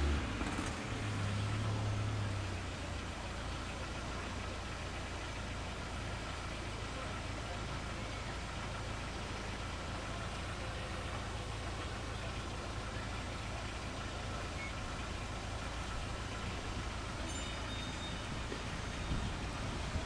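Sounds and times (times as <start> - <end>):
wind through leafy trees: 10.1 - 20.0
wind rumble on microphone: 18.3 - 20.0.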